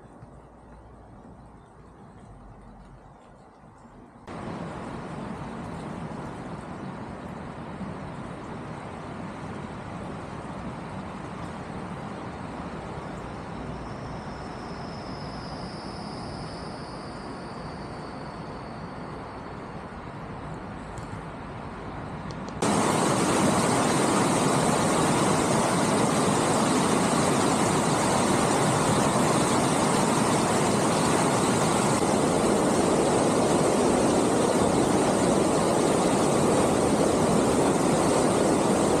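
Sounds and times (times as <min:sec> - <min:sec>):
river flowing: 0:04.2 - 0:13.5, 0:22.6 - 0:39.0.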